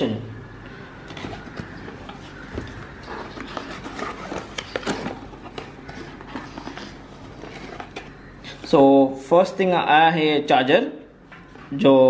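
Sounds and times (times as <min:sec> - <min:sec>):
cardboard box rustling and scraping: 0:01.1 - 0:08.2.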